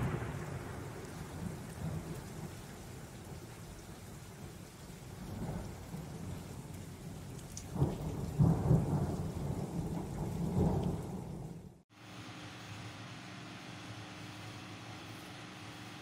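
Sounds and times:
rolling thunder: 0.0s - 11.8s
steady rain: 0.0s - 16.0s.

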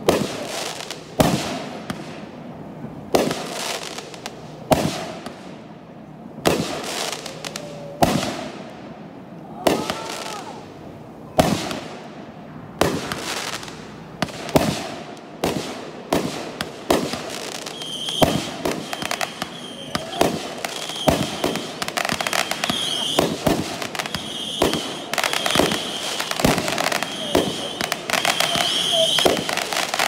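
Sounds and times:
fireworks bangs with crackle: 0.0s - 30.0s
high firework whistle: 17.6s - 30.0s.

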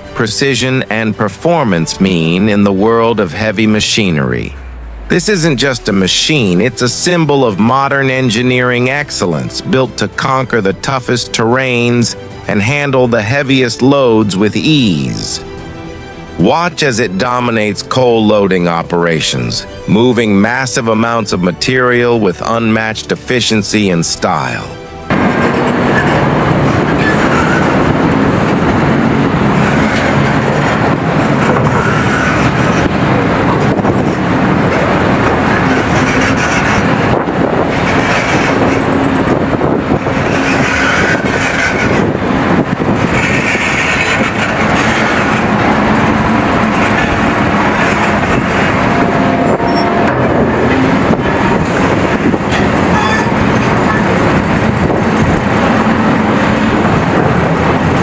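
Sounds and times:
excavator engine and hydraulics: 0.0s - 58.0s.

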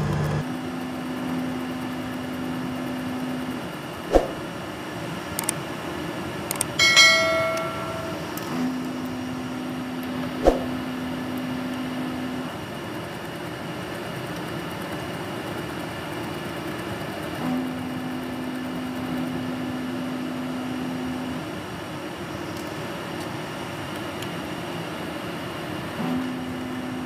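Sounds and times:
air conditioning units droning: 0.0s - 27.0s
low hum: 4.1s - 4.5s, 6.8s - 11.0s
bright metallic ring: 6.8s - 8.9s.

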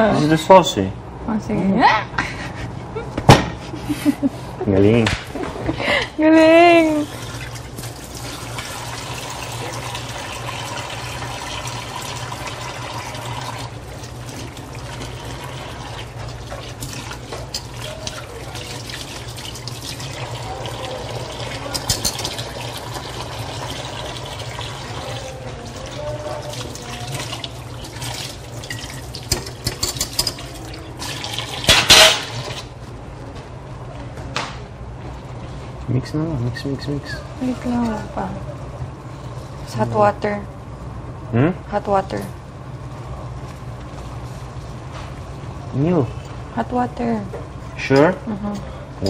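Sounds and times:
whisk clinking in a pot: 16.2s - 23.7s, 24.4s - 30.6s.

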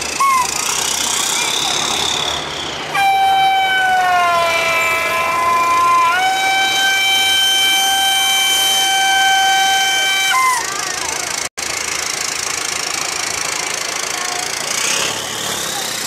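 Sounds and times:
vehicle air horn blaring: 2.9s - 10.7s.

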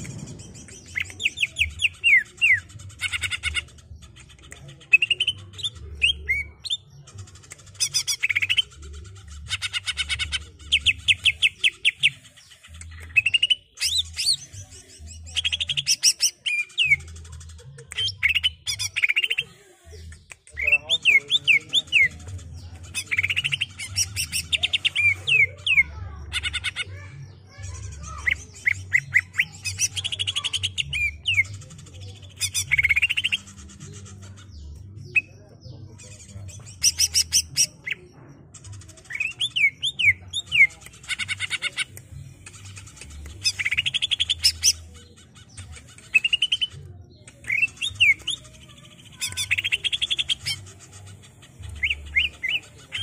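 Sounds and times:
bird singing chattering whistles: 39.1s - 44.9s, 45.6s - 46.7s, 47.3s - 53.0s.

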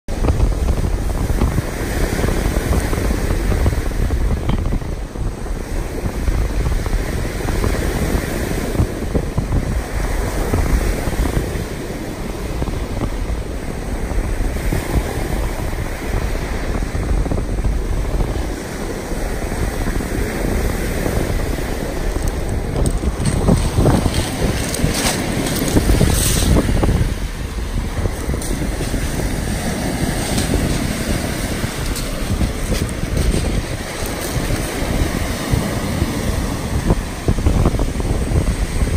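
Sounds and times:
waves washing on pebble shore: 0.1s - 38.9s
wind buffeting microphone: 0.1s - 38.9s.

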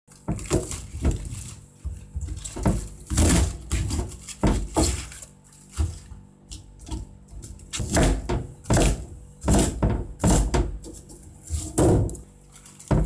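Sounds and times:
knife chopping on cutting board: 0.3s - 5.2s, 6.9s - 11.0s.

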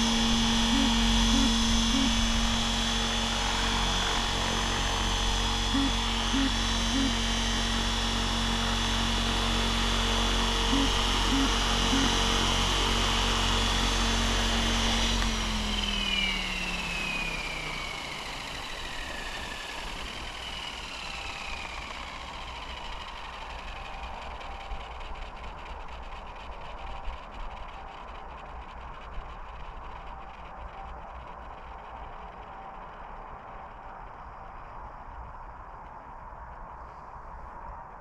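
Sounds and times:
rc helicopter rotor whine: 0.0s - 38.0s.

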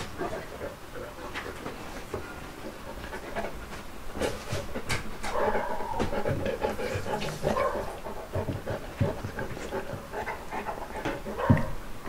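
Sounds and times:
dog breathing: 0.0s - 11.5s
dog chewing meat: 5.3s - 11.8s.

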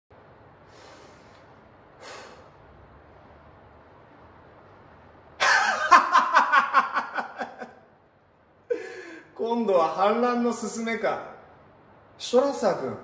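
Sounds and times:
man breathing: 0.6s - 2.7s, 8.7s - 9.4s
loud pulsing laughter: 5.4s - 7.8s.

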